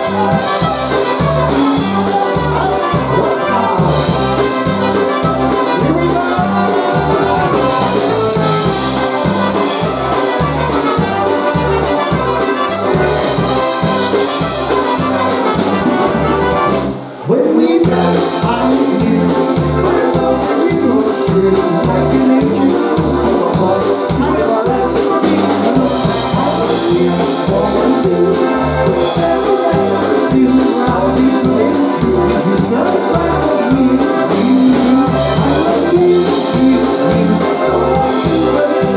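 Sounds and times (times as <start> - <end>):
driving bass beat: 0.0 - 17.0, 17.8 - 38.9
polka band with brass: 0.0 - 38.9.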